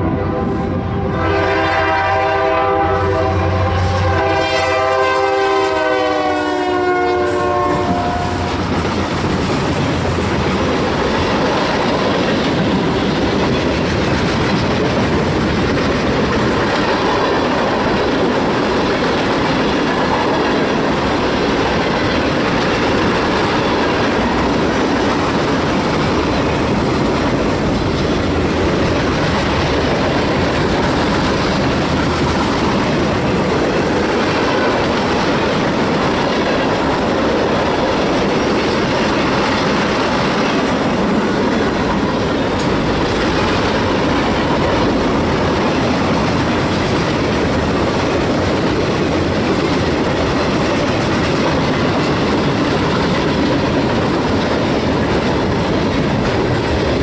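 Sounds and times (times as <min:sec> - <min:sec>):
locomotive horn: 0:00.0 - 0:08.6
train wheels clacking over rails: 0:01.4 - 0:57.0.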